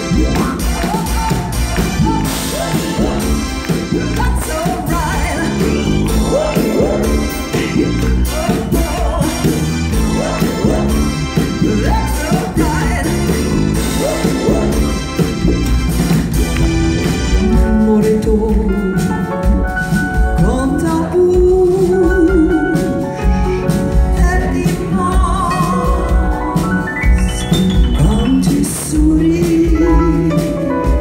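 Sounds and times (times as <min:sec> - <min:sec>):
drums: 0:00.0 - 0:31.0
electric bass: 0:00.0 - 0:31.0
woman singing: 0:17.4 - 0:19.1, 0:20.4 - 0:22.9, 0:24.1 - 0:26.8, 0:28.0 - 0:31.0.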